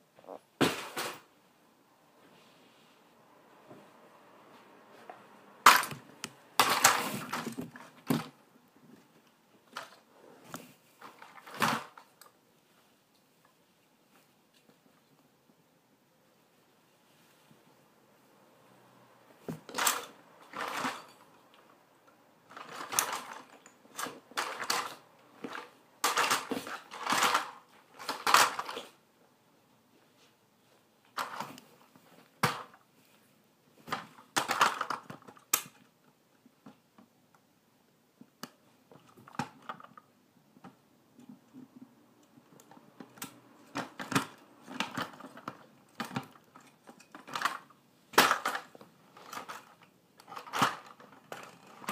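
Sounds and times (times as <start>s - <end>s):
plastic toys crunching and clattering: 5.6s - 8.4s, 9.0s - 12.4s, 19.4s - 29.0s, 31.1s - 32.9s, 33.8s - 36.0s, 38.9s - 40.2s, 42.4s - 51.9s.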